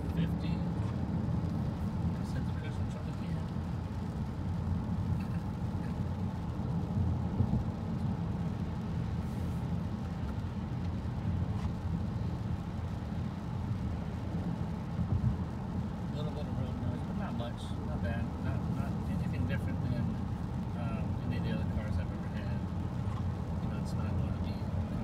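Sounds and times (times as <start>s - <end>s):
low rumble of tyres: 0.0s - 25.0s
hiss of wet road: 8.8s - 10.6s.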